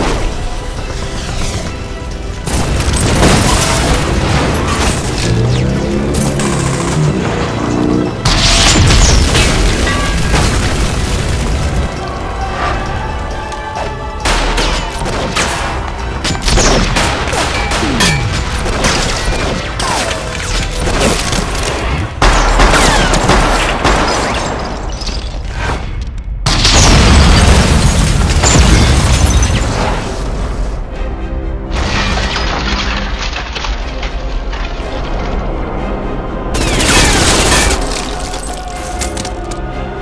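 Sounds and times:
music: 0.0 - 40.0
rapid gunshots: 16.5 - 24.7.

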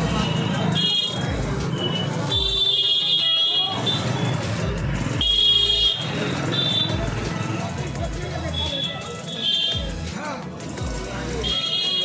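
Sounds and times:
vehicle horns honking: 0.0 - 4.5, 5.2 - 7.9, 8.6 - 10.0, 11.4 - 12.0
crowd chatter: 0.0 - 12.0
music with thudding beat: 1.3 - 2.8, 9.6 - 11.7.

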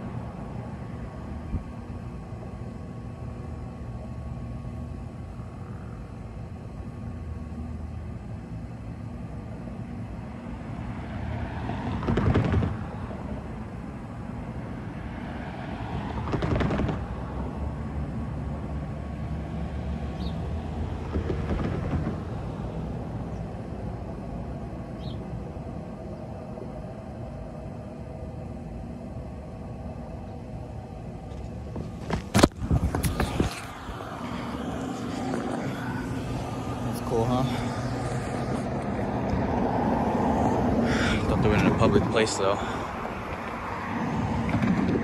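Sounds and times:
low traffic rumble: 0.0 - 45.0
vehicles passing: 9.8 - 45.0.

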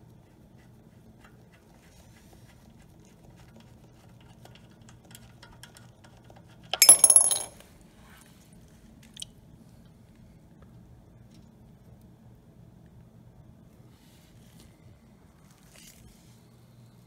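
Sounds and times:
metallic clatter and clink: 6.8 - 7.6.

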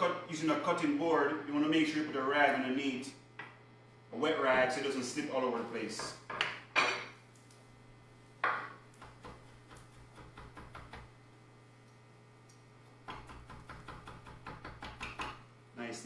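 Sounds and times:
knife tapping on wooden board: 13.1 - 15.4.

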